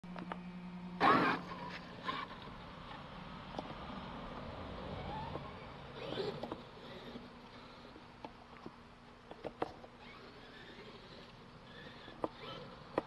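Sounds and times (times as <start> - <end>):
faint electric motor whine: 0.1 - 13.0
rc truck rushing over dirt: 1.0 - 2.6, 4.8 - 7.4, 9.4 - 13.0.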